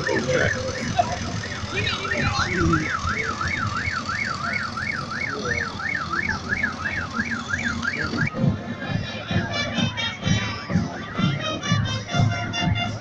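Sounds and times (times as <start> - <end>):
siren yelping: 0.0 - 8.4.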